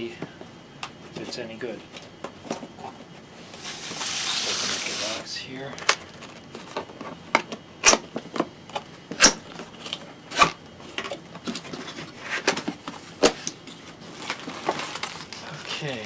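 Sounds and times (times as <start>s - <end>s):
cardboard flaps scraping: 3.5s - 5.3s.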